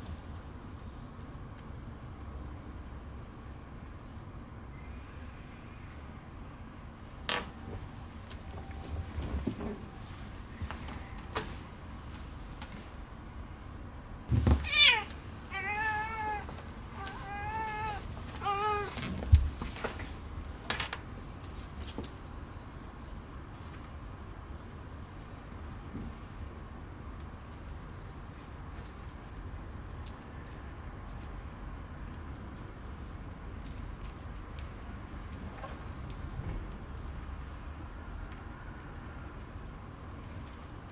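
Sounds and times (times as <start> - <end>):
cat meowing: 14.5 - 19.0.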